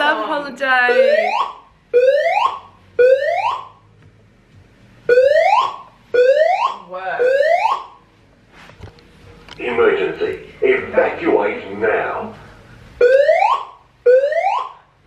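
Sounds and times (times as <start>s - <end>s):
fire alarm whooping: 0.9s - 3.8s, 5.1s - 8.0s, 13.0s - 14.9s.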